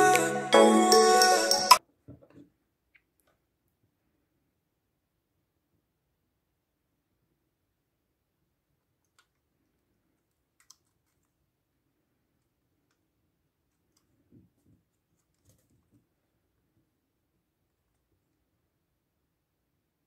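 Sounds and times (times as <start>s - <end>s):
faint clicks and rubs: 8.8s - 16.9s.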